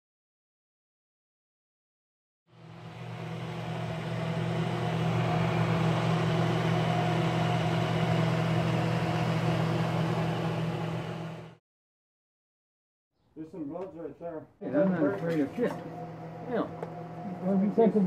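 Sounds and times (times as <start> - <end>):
cooling fan whirring: 2.6 - 11.6, 14.6 - 18.0
welder transformer humming: 2.6 - 11.6, 14.8 - 18.0.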